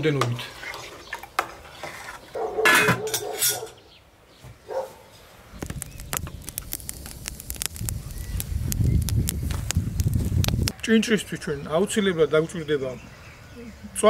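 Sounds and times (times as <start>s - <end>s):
wood fire crackling: 4.7s - 13.4s.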